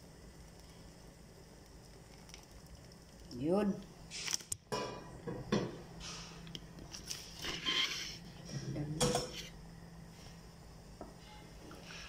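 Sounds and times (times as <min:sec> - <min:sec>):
faint steady hum: 0:00.0 - 0:12.0
kitchenware knocks and scrapes: 0:07.4 - 0:09.5.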